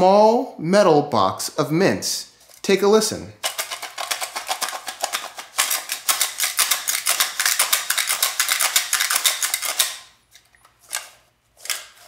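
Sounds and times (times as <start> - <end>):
mints rattling in metal tin: 3.4 - 10.1.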